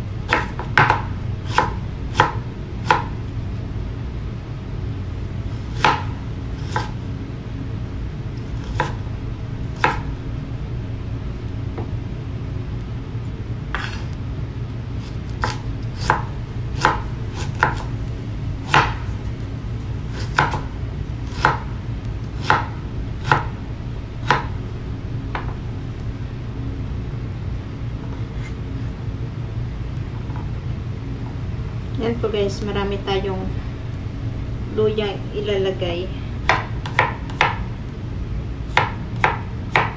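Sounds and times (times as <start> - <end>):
low hum: 0.0 - 39.8.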